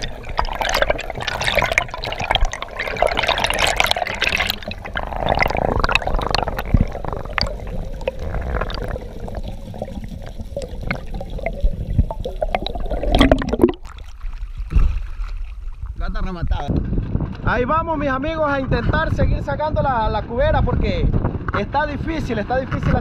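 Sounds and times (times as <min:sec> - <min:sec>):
scattered underwater clicks: 0:00.0 - 0:14.2
muffled underwater rushing water: 0:00.0 - 0:17.5.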